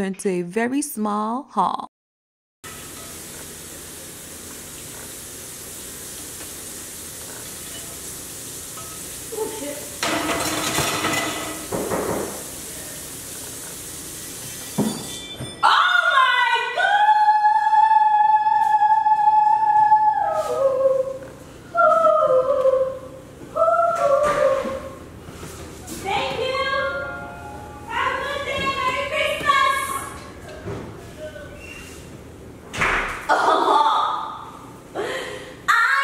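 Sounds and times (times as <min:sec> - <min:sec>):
pans and dishes clattering: 0:10.0 - 0:12.4.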